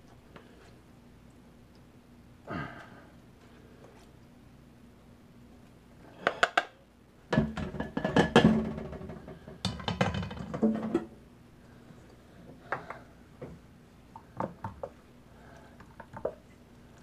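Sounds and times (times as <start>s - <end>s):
clattering and scraping in metal bowl: 7.4s - 11.1s.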